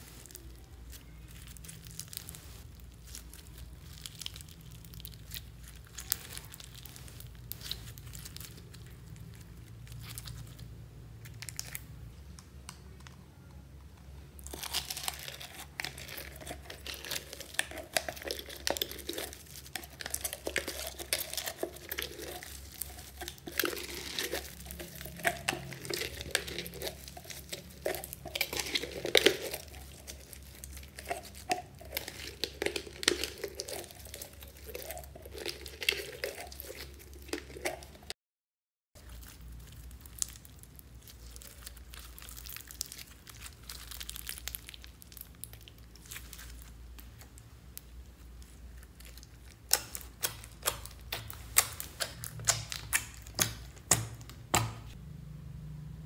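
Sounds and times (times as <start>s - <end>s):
slime crackling and popping: 0.0s - 11.9s, 14.4s - 38.1s, 39.0s - 55.0s.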